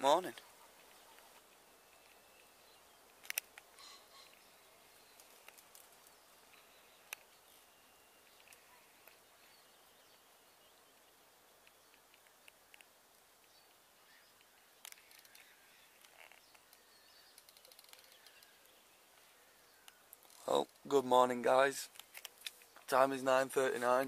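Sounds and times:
faint steady hiss: 0.0s - 24.0s
faint bird chirps: 0.3s - 20.6s
sharp clicks: 3.1s - 4.4s.

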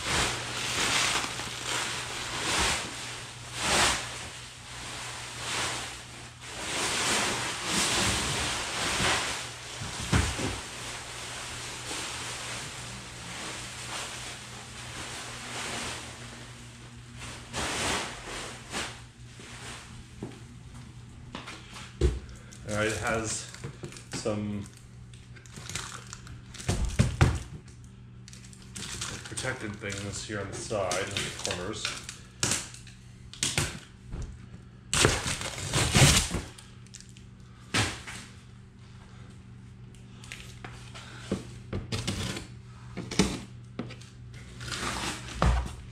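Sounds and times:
packaging rustling and crinkling: 0.0s - 16.4s, 25.4s - 27.0s, 28.2s - 32.9s, 35.0s - 37.2s
steady low hum: 0.0s - 45.9s
packing tape ripping off cardboard: 0.1s - 3.0s, 34.9s - 37.1s, 41.9s - 43.4s, 44.5s - 45.7s.

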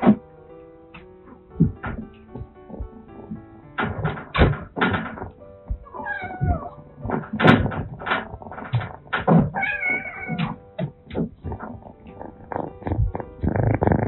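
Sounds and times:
short knocks and thumps: 1.0s - 14.0s
soft guitar music: 5.2s - 14.0s
cat meowing: 5.8s - 6.9s, 9.3s - 10.6s.

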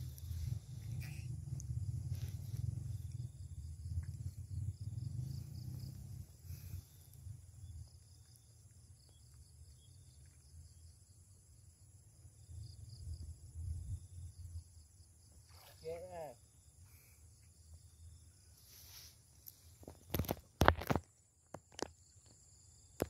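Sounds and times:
wind rumble on microphone: 0.0s - 8.4s, 12.4s - 14.9s
insect chirping: 0.0s - 23.0s.

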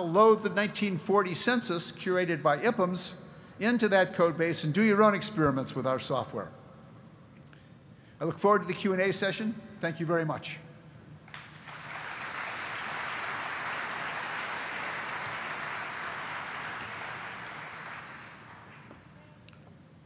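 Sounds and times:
audience applauding: 11.3s - 19.0s.

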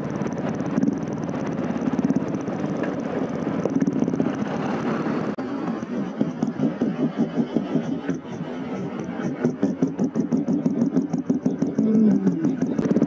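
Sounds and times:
motorcycle engine thumping: 5.6s - 13.0s.

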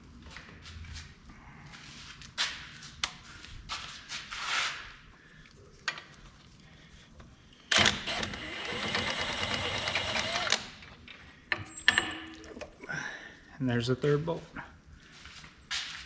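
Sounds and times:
cordless power tool whine: 7.7s - 10.8s.

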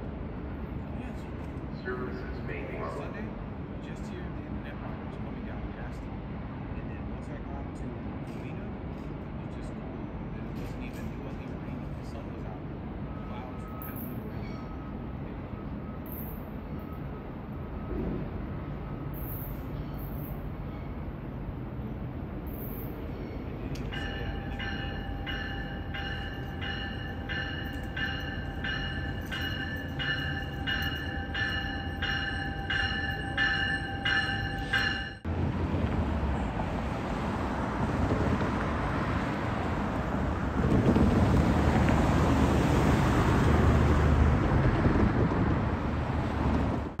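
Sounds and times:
train rushing noise: 0.0s - 47.0s
train bell ringing: 13.1s - 18.0s, 18.7s - 21.2s, 22.5s - 35.3s.

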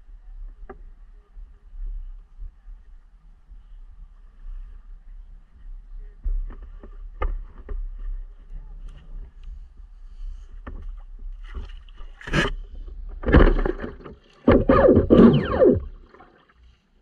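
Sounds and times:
water splashing at hull: 10.7s - 16.9s
low rumble: 13.0s - 16.3s.

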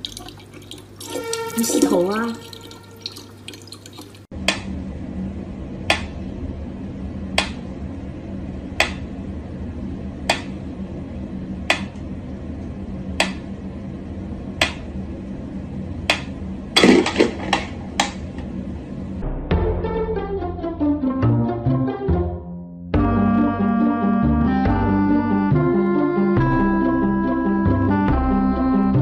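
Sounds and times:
low steady hum: 0.0s - 19.3s.

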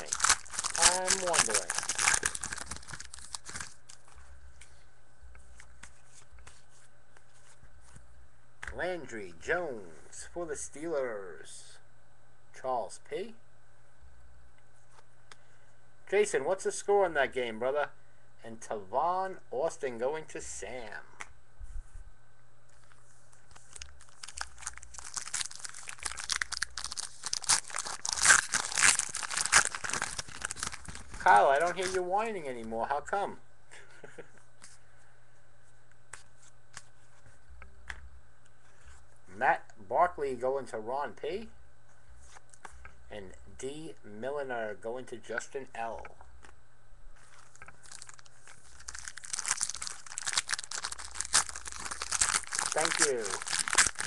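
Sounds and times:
plastic wrapping crinkling: 0.0s - 4.3s, 23.3s - 32.1s, 47.2s - 54.0s.

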